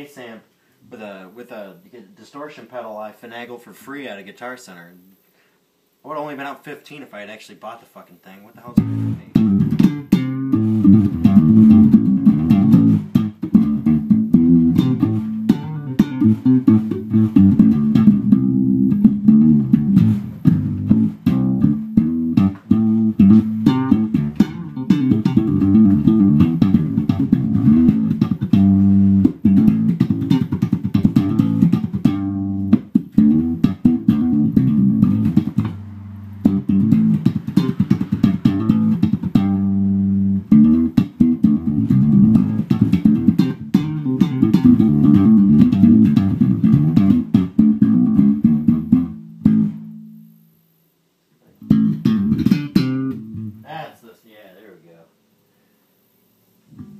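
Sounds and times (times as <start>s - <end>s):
funky electric bass guitar: 8.7s - 50.2s, 51.5s - 53.7s.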